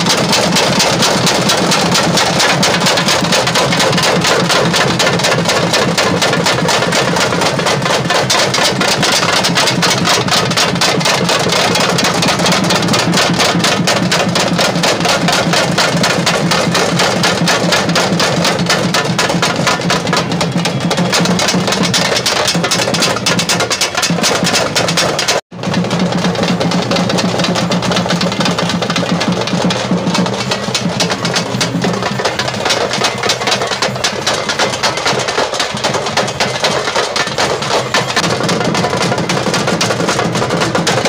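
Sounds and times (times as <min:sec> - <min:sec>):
fast drumming with sticks: 0:00.0 - 0:41.0.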